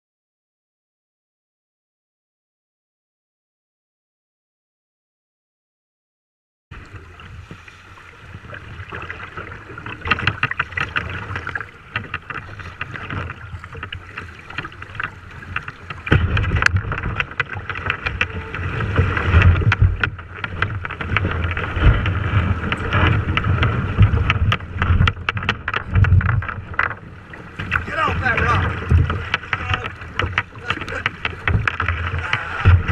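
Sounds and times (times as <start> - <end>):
low rumble on microphone: 6.7 - 32.9
splashes against kayak hull: 6.8 - 32.9.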